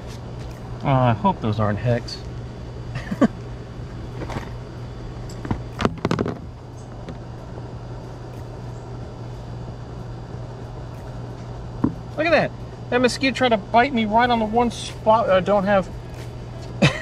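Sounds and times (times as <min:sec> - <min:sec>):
low mechanical hum: 0:00.0 - 0:17.0.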